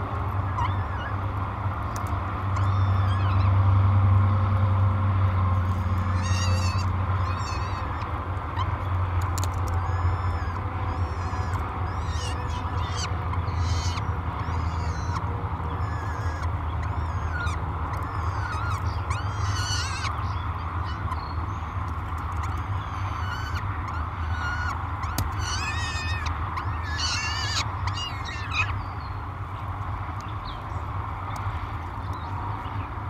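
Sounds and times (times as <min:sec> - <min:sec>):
falcon chick begging cries: 0:00.4 - 0:01.2, 0:02.5 - 0:03.6, 0:05.7 - 0:08.7, 0:09.7 - 0:21.8, 0:22.4 - 0:28.9.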